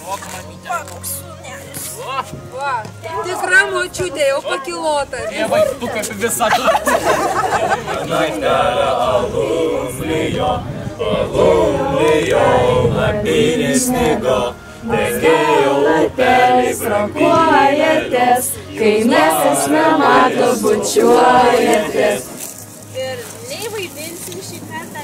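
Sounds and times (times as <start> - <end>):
young voices singing unaccompanied: 6.8 - 22.5.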